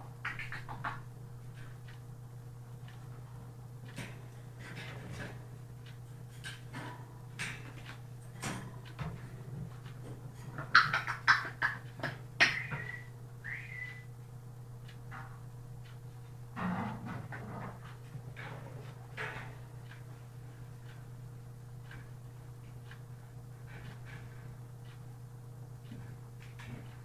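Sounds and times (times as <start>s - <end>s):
parrot clicks and scratchy sounds: 0.2s - 2.0s, 3.8s - 14.1s
parrot harsh calls: 12.4s - 14.0s
parrot whistled notes: 12.6s - 14.1s.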